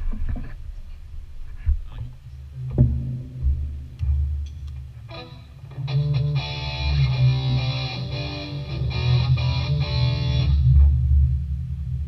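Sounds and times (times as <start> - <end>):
steady low rumble: 0.0 - 5.9, 7.0 - 12.0
electric guitar notes and chords: 2.6 - 11.7.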